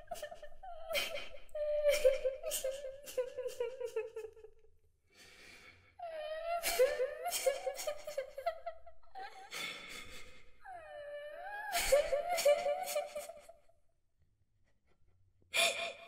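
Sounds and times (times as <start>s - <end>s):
girl crying and sobbing: 0.0s - 4.3s, 6.0s - 13.5s.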